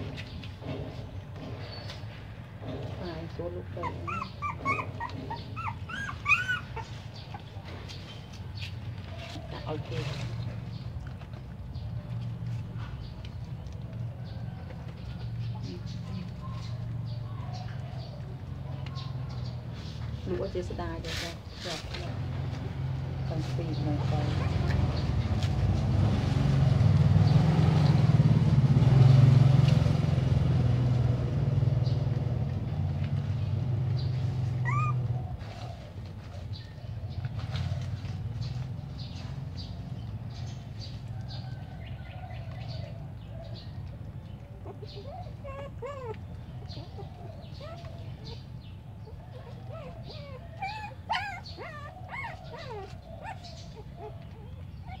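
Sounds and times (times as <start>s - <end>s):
low engine hum: 0.0s - 55.0s
puppies whimpering and yelping: 3.4s - 20.5s, 34.0s - 40.8s, 42.4s - 55.0s.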